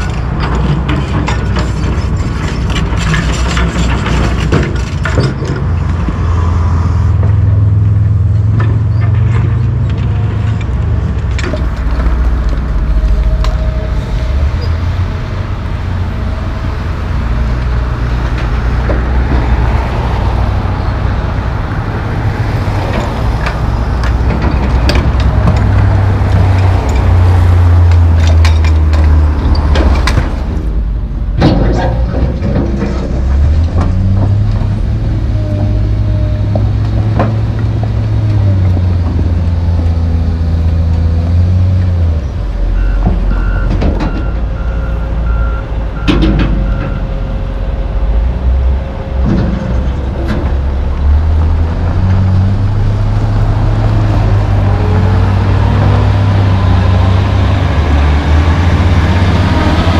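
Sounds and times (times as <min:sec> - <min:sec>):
excavator diesel engines working: 0:00.0 - 0:59.9
metal clanks: 0:22.9 - 0:30.7, 0:31.3 - 0:34.8.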